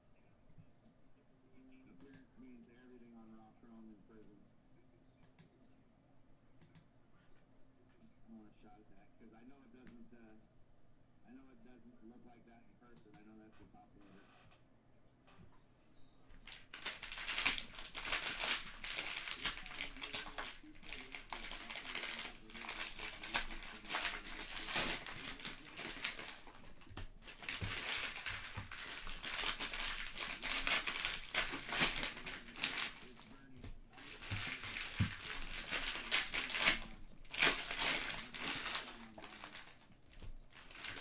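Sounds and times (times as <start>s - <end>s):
plastic wrappers crinkling and tearing: 16.4s - 41.0s.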